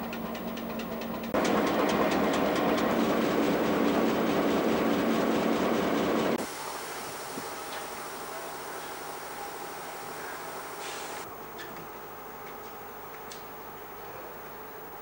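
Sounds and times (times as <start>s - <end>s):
diesel locomotive idling: 0.0s - 11.2s.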